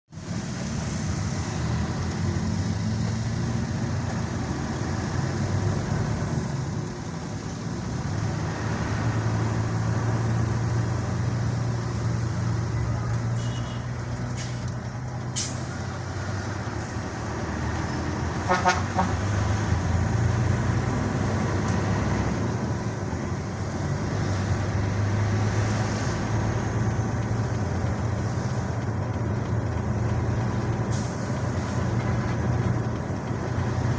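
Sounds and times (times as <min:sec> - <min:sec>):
vehicle engine hum and road noise: 0:00.1 - 0:33.9
car horn toot: 0:13.4 - 0:13.9, 0:18.4 - 0:19.2.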